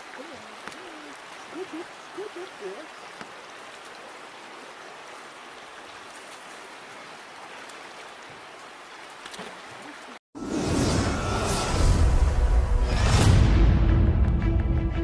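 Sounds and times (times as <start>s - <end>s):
faint ticks and splashes: 0.0s - 10.2s.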